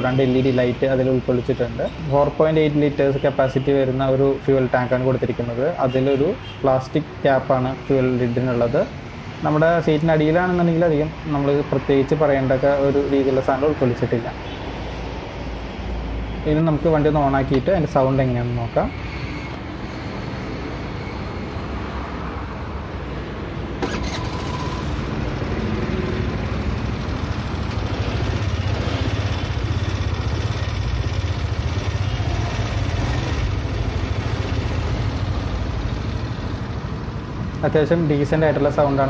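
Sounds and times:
scooter engine running: 23.8 - 37.5.

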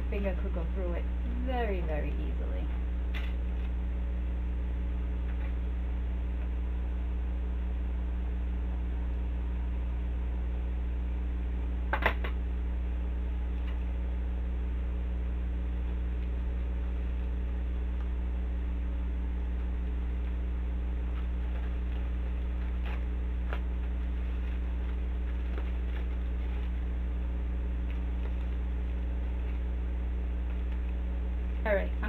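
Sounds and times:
desk fan humming: 0.0 - 32.0
handling rustle: 21.0 - 27.2.

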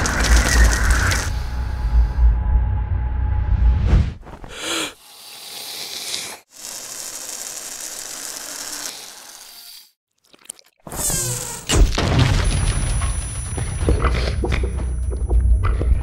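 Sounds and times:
deep rumble: 0.0 - 4.2.

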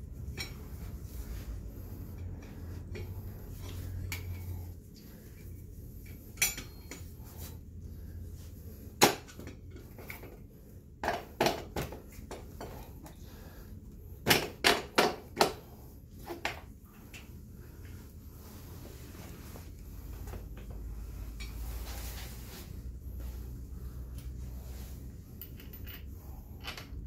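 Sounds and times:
metal clinks and knocks: 6.0 - 7.2, 25.4 - 27.0.

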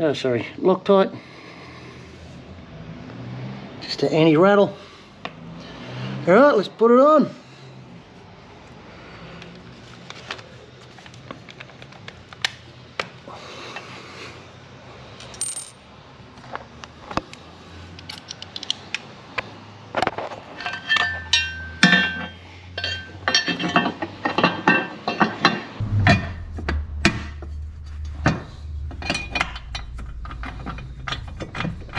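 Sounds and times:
metal parts clinking: 15.2 - 15.8.

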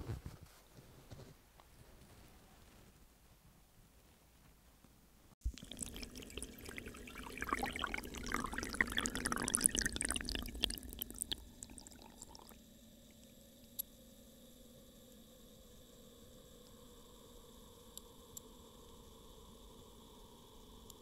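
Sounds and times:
faint steady hiss: 0.0 - 21.0
water pouring and gurgling: 5.4 - 13.3.

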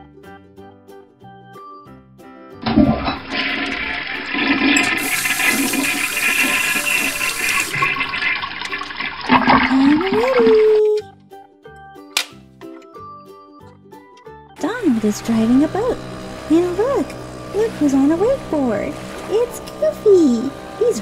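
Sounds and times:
toilet flushing: 2.6 - 10.8, 14.6 - 21.0.

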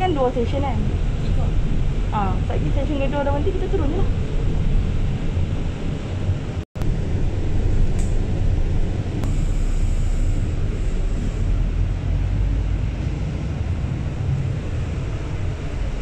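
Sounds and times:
bus rumbling: 0.0 - 16.0
faint high whine: 6.8 - 11.6.

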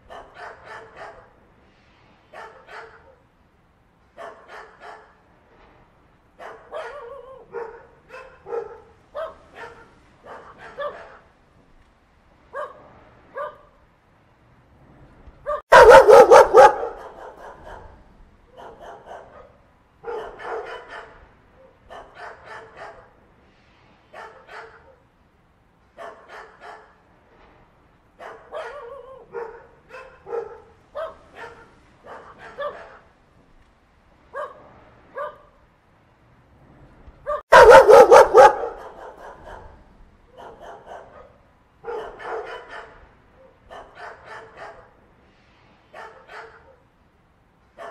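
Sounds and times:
puppy barking rapidly: 0.0 - 1.3, 4.2 - 5.2, 6.4 - 11.2, 15.5 - 17.9, 18.6 - 21.2, 21.9 - 23.1, 28.2 - 33.0, 37.3 - 39.7, 40.4 - 43.0, 43.7 - 44.9
puppy yipping and whining: 37.3 - 39.6.

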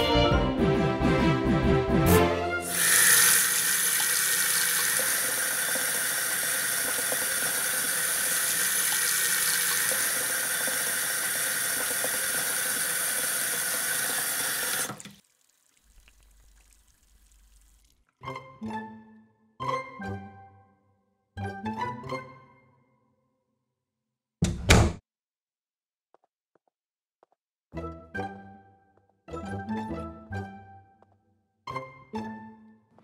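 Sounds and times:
shower spray running: 2.7 - 18.0.

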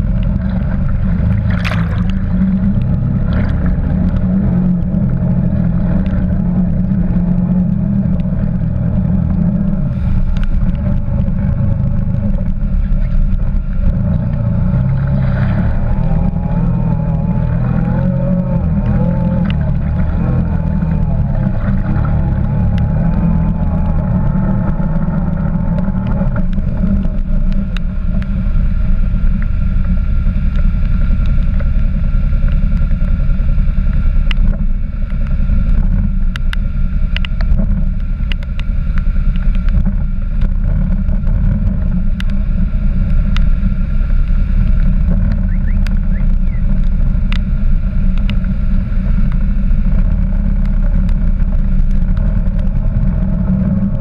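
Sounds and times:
water churning and splashing: 0.0 - 54.0
sharp clicks: 33.9 - 42.4, 48.1 - 48.5.

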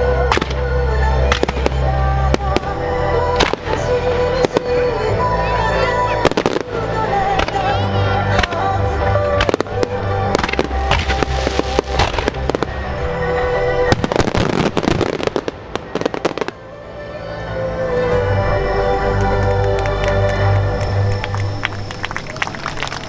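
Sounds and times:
music: 0.0 - 23.0
fireworks bursting and crackling: 0.3 - 0.6, 1.2 - 4.8, 6.2 - 13.1, 13.8 - 16.6.

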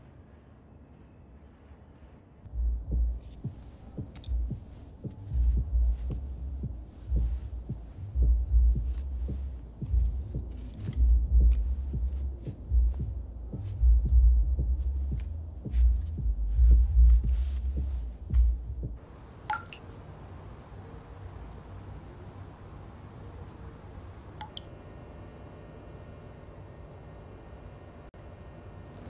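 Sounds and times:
deep thudding pulses: 2.5 - 19.0.

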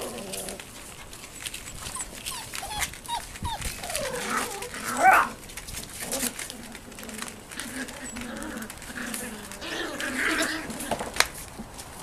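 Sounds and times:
puppies whimpering: 0.0 - 11.0
puppy yelp: 1.3 - 5.4.

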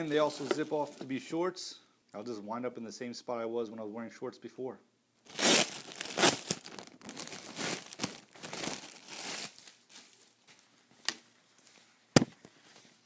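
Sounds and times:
plastic bag crinkling: 5.3 - 10.7.

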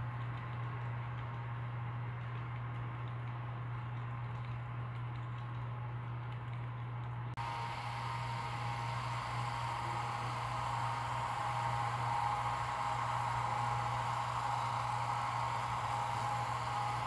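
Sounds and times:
low electrical hum: 0.0 - 17.0
faint high whine: 7.4 - 17.0.

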